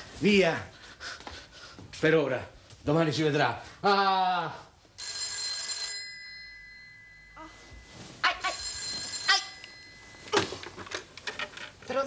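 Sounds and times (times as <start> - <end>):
telephone ringing: 5.0 - 11.1.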